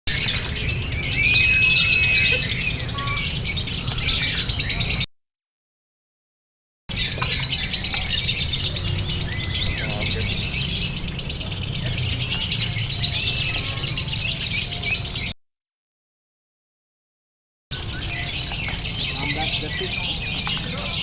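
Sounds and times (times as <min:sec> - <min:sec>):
bird whistle: 0:00.1 - 0:05.1
lovebirds chirping and trilling: 0:00.1 - 0:05.1, 0:06.9 - 0:15.4, 0:17.7 - 0:21.0.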